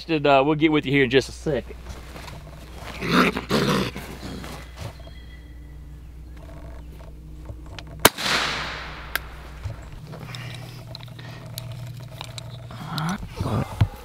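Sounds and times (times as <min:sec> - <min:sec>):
gunshot with echo: 0:08.1 - 0:09.2.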